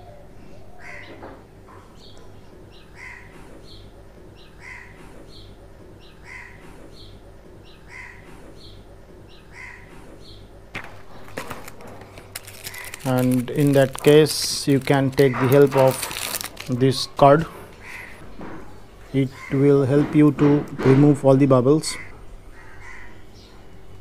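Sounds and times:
bird calling: 0:00.0 - 0:01.4, 0:02.0 - 0:19.9, 0:21.8 - 0:23.7
paper packet rustling: 0:10.8 - 0:18.1.

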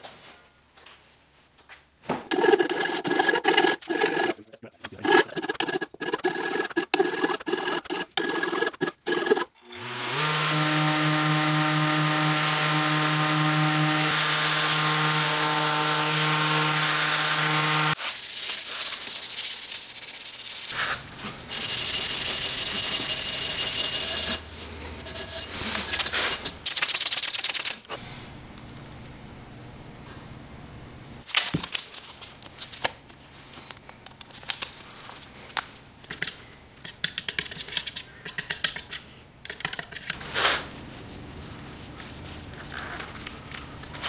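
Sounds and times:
hand sanding wood: 0:02.3 - 0:09.5, 0:10.2 - 0:27.8, 0:40.3 - 0:44.0
steel blade scraping wood: 0:02.3 - 0:09.5, 0:17.9 - 0:28.0
orbital sander running: 0:05.3 - 0:18.0, 0:21.5 - 0:26.0.

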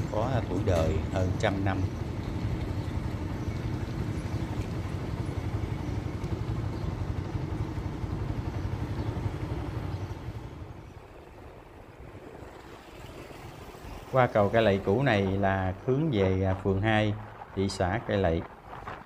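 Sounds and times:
motorbike engines humming: 0:00.0 - 0:17.3.

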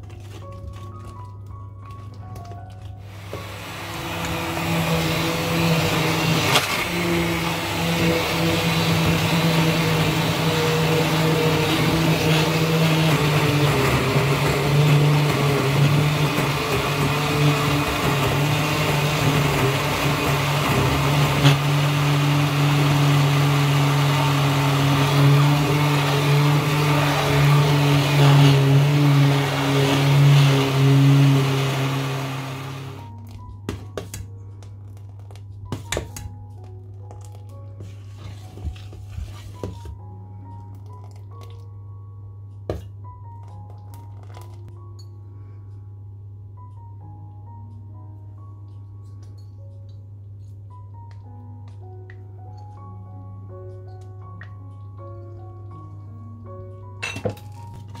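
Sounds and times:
immersion blender motor hum: 0:03.1 - 0:33.1.

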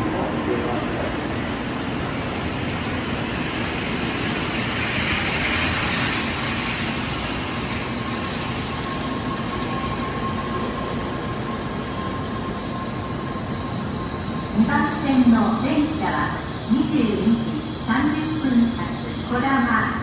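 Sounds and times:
train running past: 0:00.0 - 0:20.0
faint high whine: 0:04.9 - 0:20.0.

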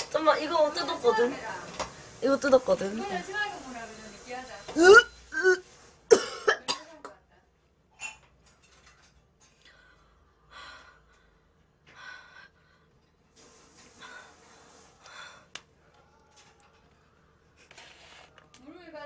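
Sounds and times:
woman coughing and clearing throat: 0:04.8 - 0:07.2.

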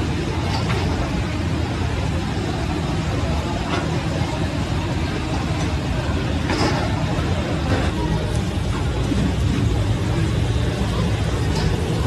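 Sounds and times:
faint voices: 0:00.0 - 0:12.0.

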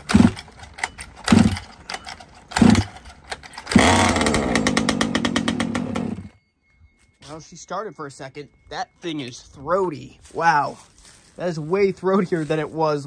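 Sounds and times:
recoil pull-starter yanked: 0:00.0 - 0:06.3
small engine running: 0:00.0 - 0:06.4.

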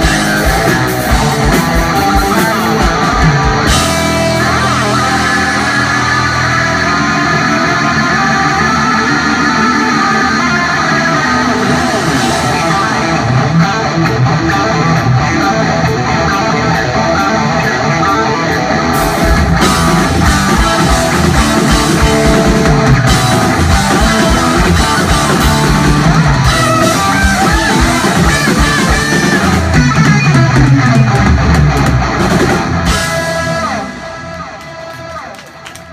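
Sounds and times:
drum kit with cymbals: 0:00.0 - 0:07.5, 0:19.0 - 0:34.8
bass guitar: 0:00.0 - 0:35.9
electric guitar: 0:00.0 - 0:35.9.

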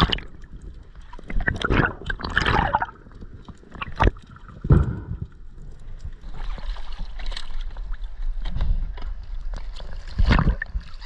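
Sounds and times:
heavy thump: 0:04.7 - 0:05.4.

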